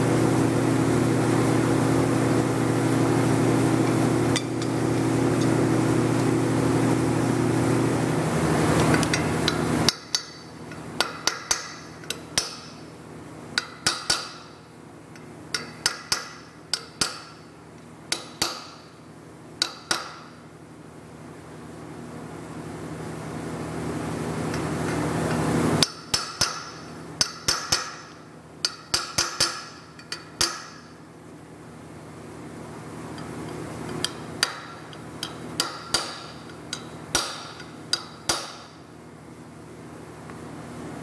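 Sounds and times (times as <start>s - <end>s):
hammer striking metal punch: 11.0s - 12.8s, 13.6s - 14.5s, 15.5s - 17.4s, 18.1s - 18.9s, 19.6s - 20.4s, 25.8s - 31.0s, 34.0s - 38.8s.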